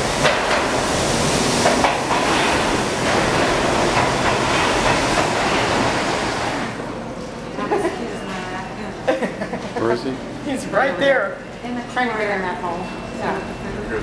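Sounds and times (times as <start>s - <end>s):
sharp clanks of train cars: 0.0s - 6.7s
train wheels rushing on rails: 0.0s - 6.9s.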